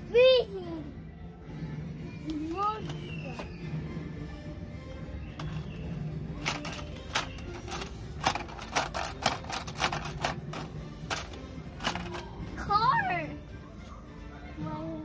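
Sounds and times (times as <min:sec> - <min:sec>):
hand tapping plastic toy boxes: 0:05.4 - 0:05.8, 0:06.4 - 0:12.4.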